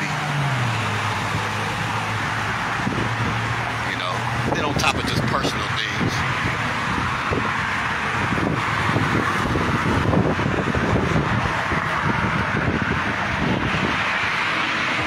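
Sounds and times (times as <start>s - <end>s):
traffic going by: 0.0s - 15.0s
wind buffeting microphone: 0.7s - 15.0s.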